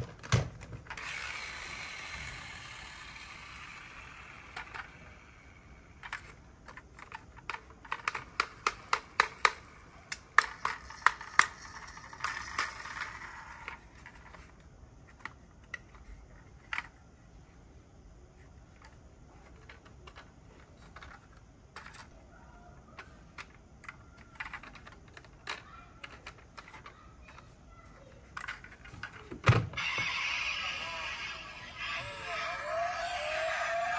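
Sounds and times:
model car parts clicking: 0.1s - 5.2s, 6.0s - 17.0s, 18.7s - 22.1s, 22.9s - 27.5s, 28.2s - 29.3s.

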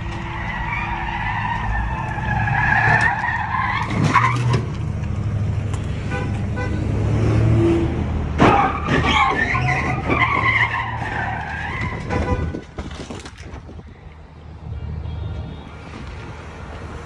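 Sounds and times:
car tyres squealing: 0.0s - 4.8s, 8.4s - 13.3s.

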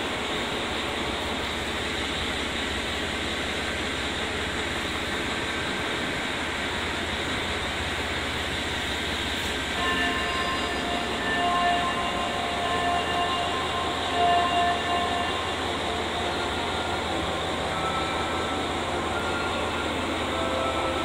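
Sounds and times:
diesel train rumbling: 0.0s - 21.0s
high steady tones: 9.6s - 21.0s.

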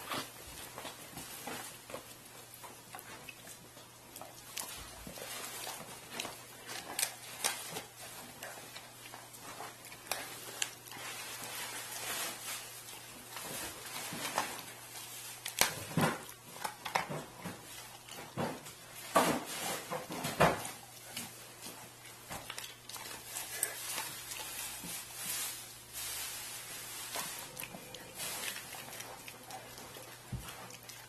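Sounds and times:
dog crunching on bones: 0.0s - 25.9s, 26.6s - 31.0s.

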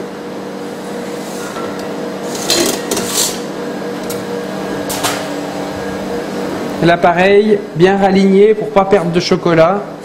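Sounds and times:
steady machine hum: 0.0s - 10.0s
metal scraper on steel wires: 1.3s - 3.5s.

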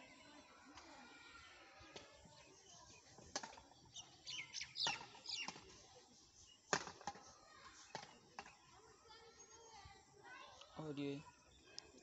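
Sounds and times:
rackets hitting shuttlecock: 3.2s - 3.7s, 4.8s - 5.7s, 6.7s - 7.3s.

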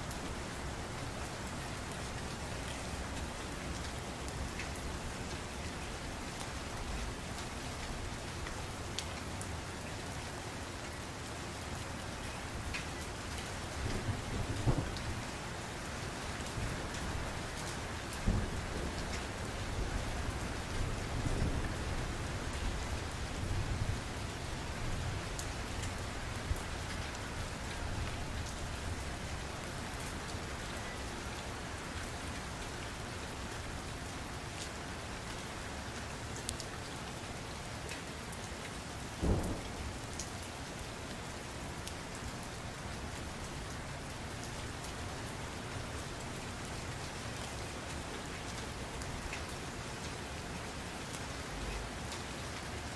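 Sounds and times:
steady rain: 0.0s - 52.9s
distant thunder rumbles: 13.9s - 15.2s, 39.2s - 40.0s.

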